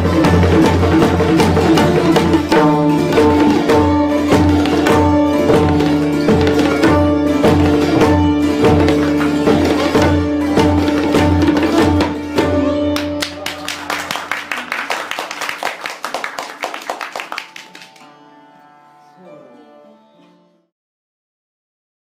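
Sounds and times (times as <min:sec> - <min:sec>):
plucked strings with sliding notes: 0:00.0 - 0:14.1.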